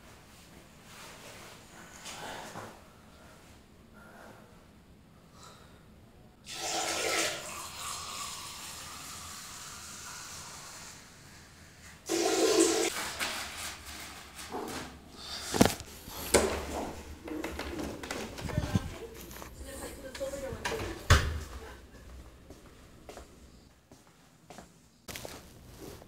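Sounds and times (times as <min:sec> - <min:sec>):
urine stream into toilet: 0:06.4 - 0:11.4, 0:12.0 - 0:14.8
toilet flushing: 0:06.4 - 0:15.5.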